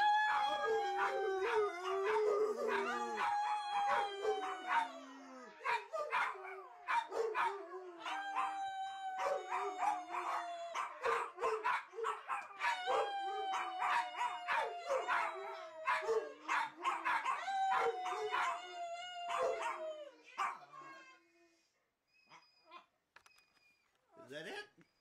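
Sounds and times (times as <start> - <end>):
dogs howling: 0.0 - 20.6
dogs yipping and barking: 5.6 - 8.5, 9.2 - 13.0, 13.6 - 18.6, 19.3 - 19.8.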